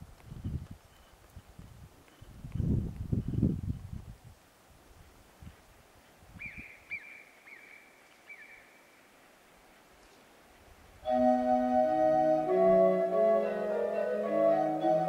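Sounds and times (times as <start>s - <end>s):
faint wind gusts: 0.0s - 15.0s
pipe organ chord: 11.1s - 15.0s.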